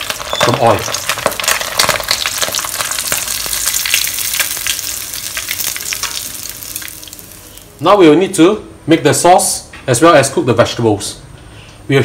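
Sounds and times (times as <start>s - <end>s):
hot oil sizzling: 0.0s - 7.9s.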